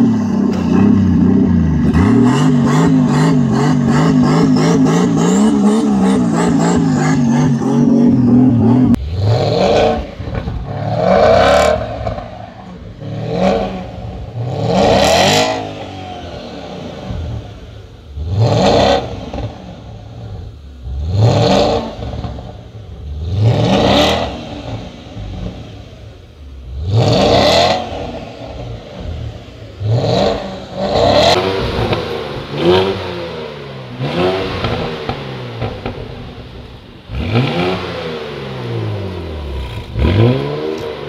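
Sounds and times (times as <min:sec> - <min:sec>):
car engine revving: 0:00.0 - 0:41.0.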